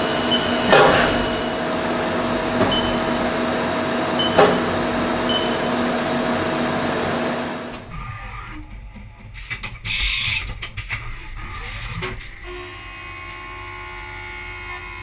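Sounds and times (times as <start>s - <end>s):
milling machine cutting metal: 0.0s - 7.9s
whining tones: 0.0s - 8.4s.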